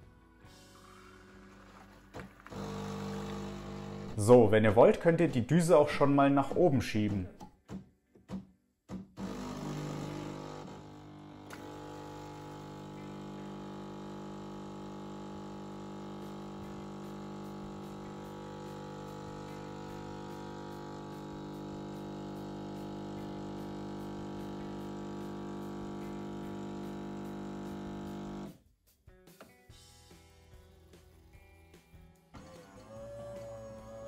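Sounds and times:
coffee machine grinder whirr: 0.8s - 4.2s, 9.2s - 28.5s, 32.4s - 34.0s
coffee machine pump hum: 0.8s - 4.2s, 9.2s - 28.5s.

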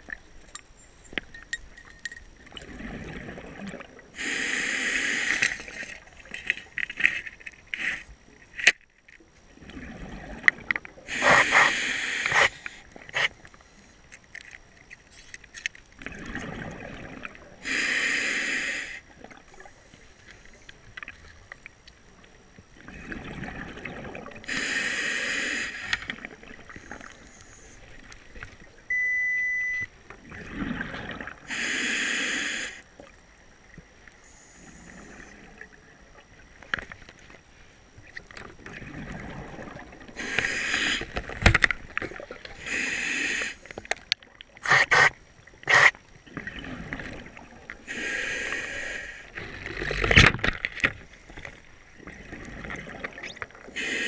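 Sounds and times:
exhaled bubbles burbling: 2.5s - 4.2s, 9.5s - 11.4s, 16.0s - 17.6s, 22.8s - 24.5s, 26.1s - 27.3s, 30.1s - 31.5s, 38.2s - 42.7s, 46.2s - 47.9s, 51.9s - 53.8s
scuba regulator breathing hiss: 4.2s - 5.8s, 11.1s - 14.0s, 17.6s - 19.0s, 24.5s - 26.1s, 31.5s - 32.8s, 40.2s - 41.1s, 42.6s - 43.8s, 47.9s - 49.4s, 53.8s - 54.0s
short electronic beep: 28.9s - 29.9s.

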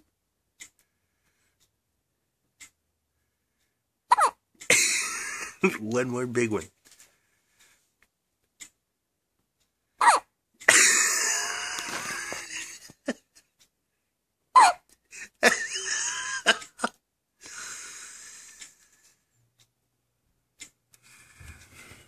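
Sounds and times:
baby hiccuping: 4.1s - 4.4s, 10.0s - 10.3s, 14.6s - 14.8s.

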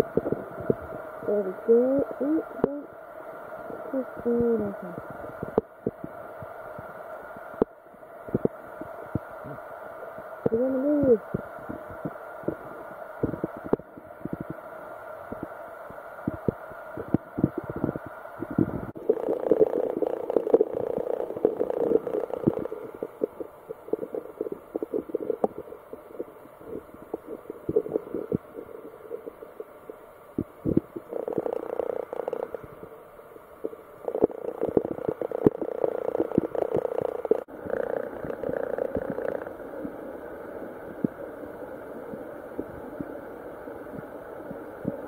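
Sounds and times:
underwater knocks and clicks: 30.4s - 32.7s, 34.2s - 37.5s.

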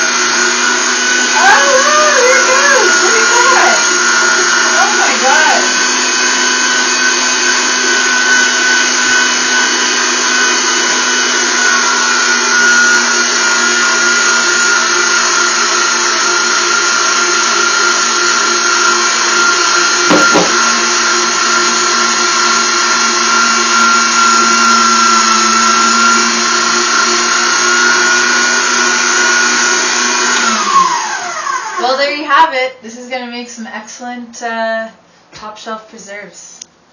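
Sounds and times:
electric motor whining: 0.0s - 31.9s
brief knock: 20.1s - 20.6s.

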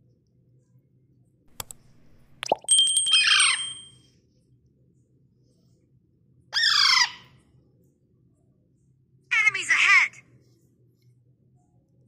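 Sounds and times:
parakeet squawks: 3.1s - 3.7s, 6.6s - 7.3s.

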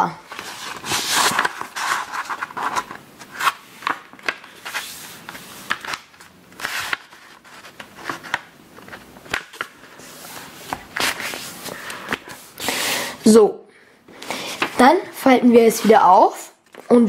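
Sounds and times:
paper rustling and crackling: 0.2s - 12.6s.

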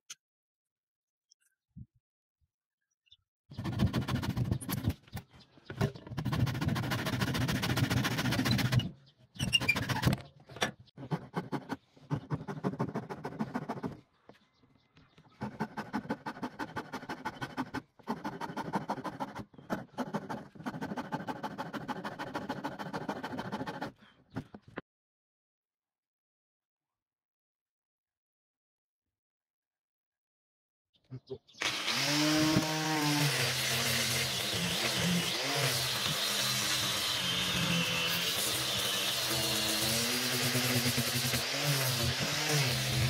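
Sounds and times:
hand file rasping wood: 6.1s - 8.9s, 11.0s - 14.0s, 15.4s - 24.0s, 31.6s - 43.0s.

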